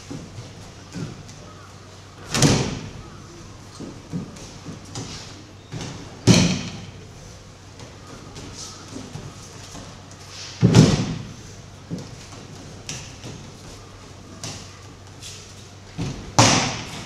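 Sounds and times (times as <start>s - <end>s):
bodies slapping onto mats: 2.2s - 3.0s, 7.8s - 14.7s, 15.3s - 17.0s.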